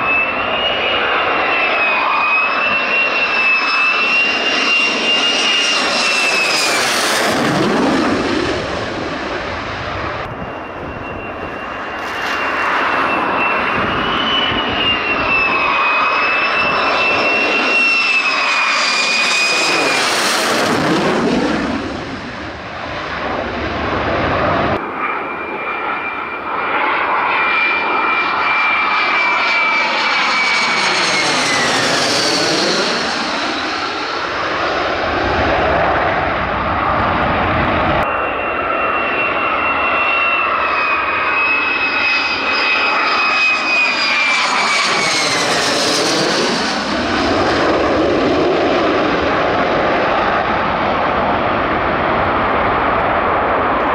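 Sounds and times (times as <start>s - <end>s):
high jet whistle: 0.0s - 7.3s, 10.1s - 20.6s, 24.8s - 34.6s, 37.6s - 47.3s
jet engine roar: 0.0s - 53.9s.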